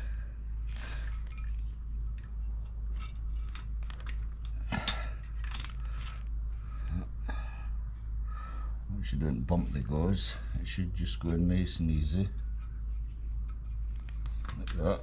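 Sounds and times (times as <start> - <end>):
faint clicks and rustles: 0.0 - 6.9, 11.2 - 15.0
steady low hum: 0.0 - 15.0.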